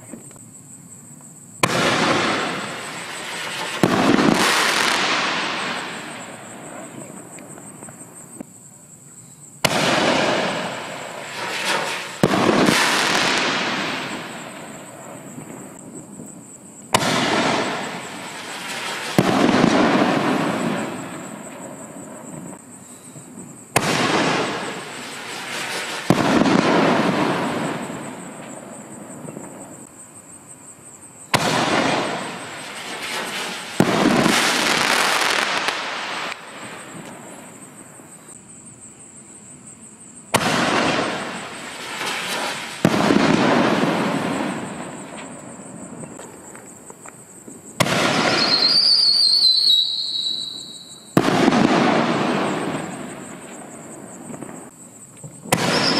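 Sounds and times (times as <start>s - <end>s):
firework shell bursting overhead: 1.6s - 8.0s, 9.6s - 15.8s, 31.3s - 37.8s, 47.7s - 54.7s, 55.5s - 55.9s.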